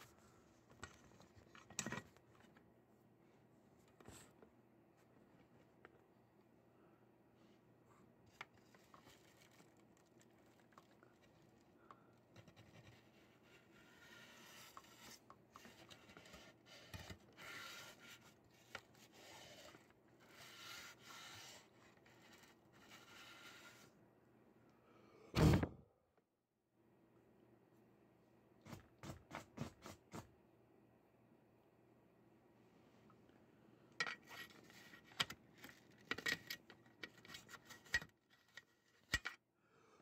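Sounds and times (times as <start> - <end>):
thump: 25.4 - 25.8.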